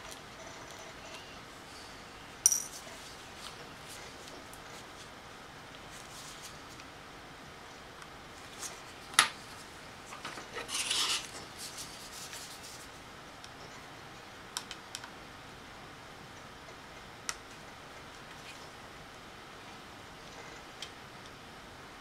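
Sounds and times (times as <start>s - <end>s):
rasping scrape: 10.6s - 12.2s.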